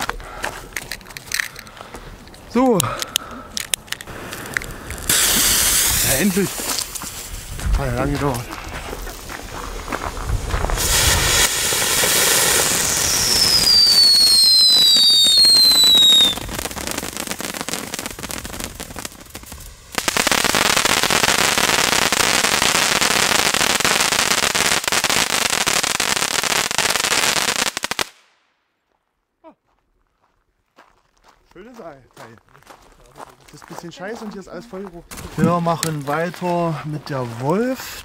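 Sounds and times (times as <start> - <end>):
firework crackling: 3.6 - 28.4
firework fountain hissing: 4.1 - 27.2
falling whistles: 12.7 - 16.6.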